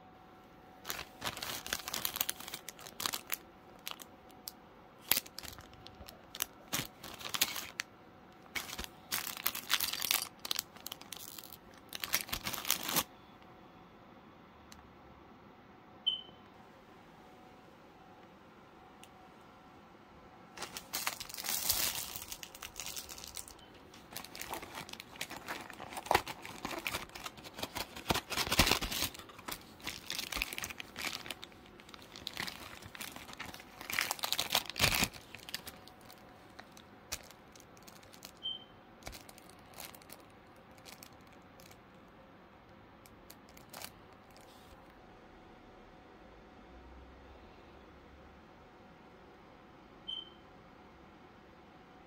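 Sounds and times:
plastic bags crinkling: 0:00.8 - 0:13.1, 0:20.6 - 0:41.9, 0:43.1 - 0:44.7.

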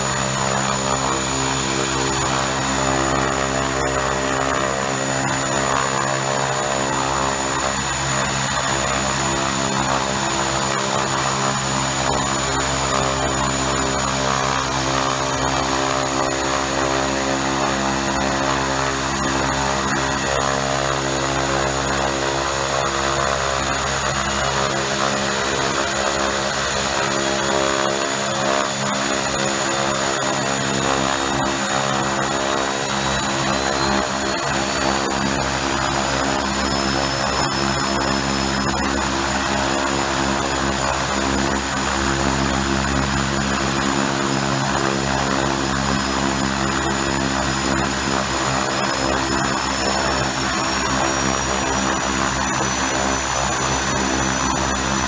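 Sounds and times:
high turbine whine: 0:00.0 - 0:55.0
propeller drone: 0:00.0 - 0:55.0.

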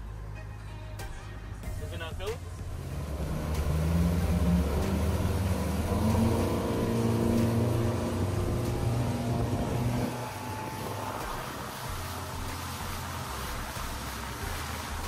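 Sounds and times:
rushing water and wake: 0:00.0 - 0:15.0
outboard motors running hard: 0:02.2 - 0:15.0.

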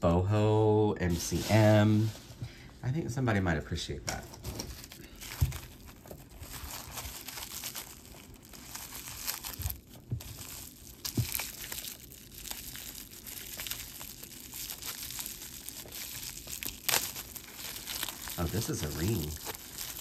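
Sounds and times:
wrapping rustling and crumpling: 0:04.3 - 0:20.0.

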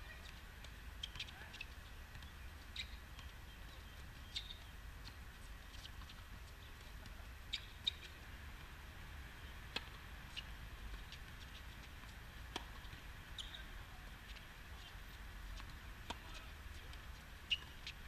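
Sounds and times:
shoe squeaks on court: 0:03.8 - 0:04.6, 0:13.4 - 0:13.7, 0:17.5 - 0:17.9.

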